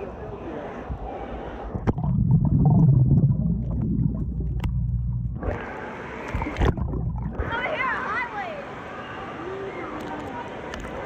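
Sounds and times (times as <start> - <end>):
muffled underwater rumble: 1.0 - 7.6.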